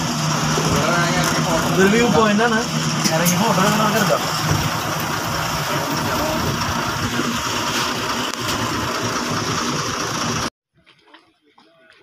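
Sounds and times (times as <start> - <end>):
bus diesel engine running: 0.0 - 10.5.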